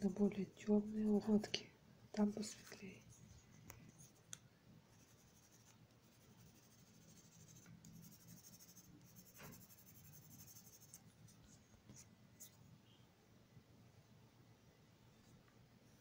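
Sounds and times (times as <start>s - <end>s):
colored pencil scratching on paper: 4.9s - 12.6s.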